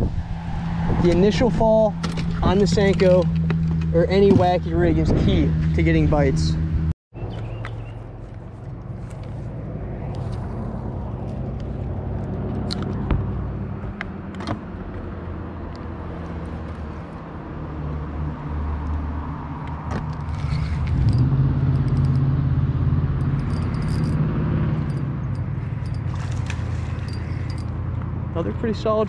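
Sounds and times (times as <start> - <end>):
low rumble: 0.0 - 6.9
fish splashing: 25.5 - 27.7
fishing reel clicking: 26.8 - 27.7.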